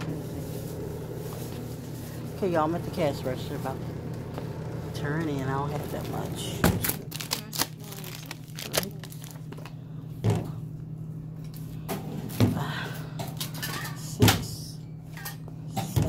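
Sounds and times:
steady electrical hum: 0:00.0 - 0:16.0.

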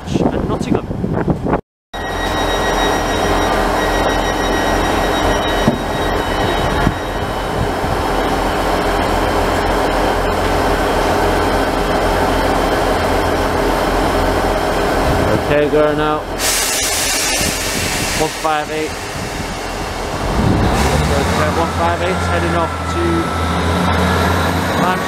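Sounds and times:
diesel train engines droning: 0:02.0 - 0:25.0.

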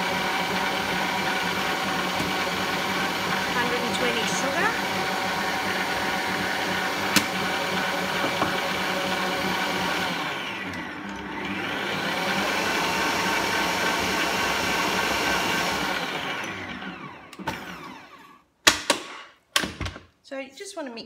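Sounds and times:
stand mixer motor running: 0:00.0 - 0:18.3.

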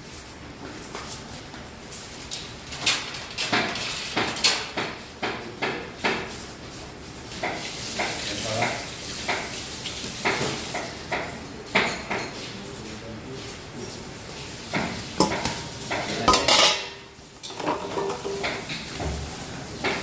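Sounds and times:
metal dishes and utensils clinking: 0:10.2 - 0:19.0.

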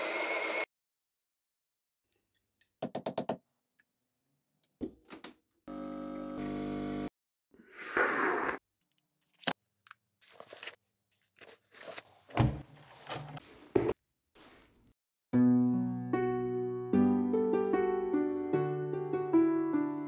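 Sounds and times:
machine pump buzzing: 0:05.7 - 0:07.1.

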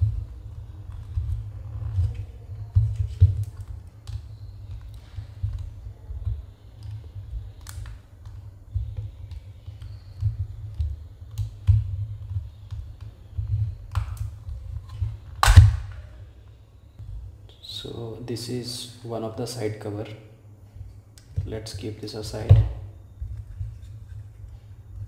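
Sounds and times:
plastic cover snapping: 0:13.9 - 0:16.1.

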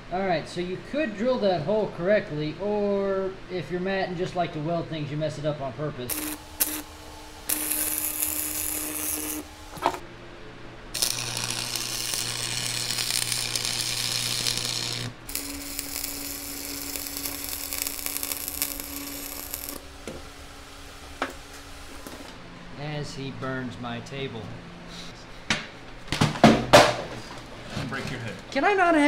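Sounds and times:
welding arc crackling and sizzling: 0:06.1 - 0:10.0, 0:10.9 - 0:22.4.

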